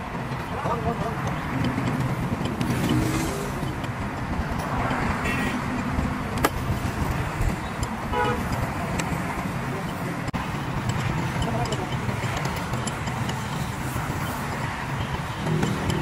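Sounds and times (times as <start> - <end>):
motor vehicles rumbling: 0.0 - 16.0.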